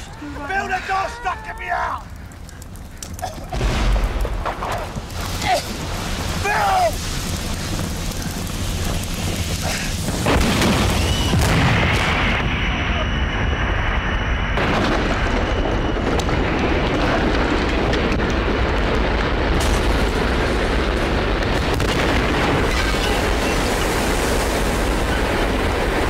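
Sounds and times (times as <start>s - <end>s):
fireball and burning car: 0.1s - 26.0s
car explosion blast: 3.5s - 5.0s, 9.8s - 13.1s, 18.8s - 26.0s.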